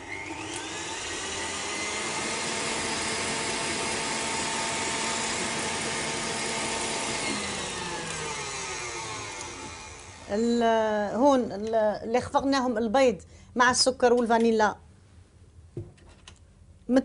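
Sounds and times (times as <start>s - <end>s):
stand mixer motor whining: 0.0s - 10.4s.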